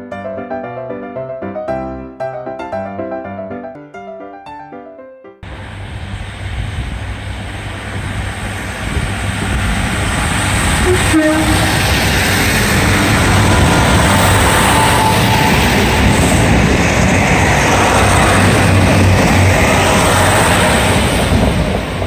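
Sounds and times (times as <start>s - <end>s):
diesel train passing: 5.4s - 22.0s.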